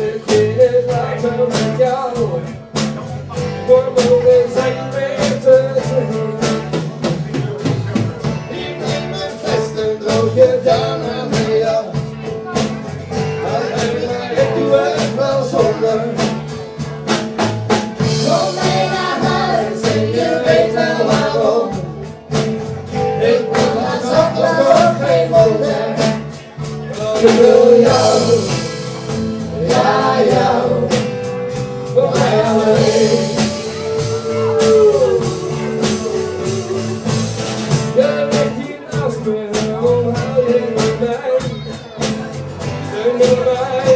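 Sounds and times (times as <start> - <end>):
acoustic guitars strumming: 0.0 - 43.9
bending melody line: 17.9 - 38.9.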